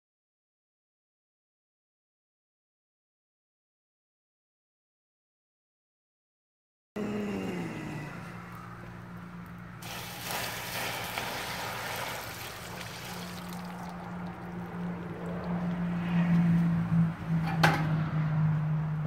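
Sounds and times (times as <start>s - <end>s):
water splashing: 9.8s - 16.4s.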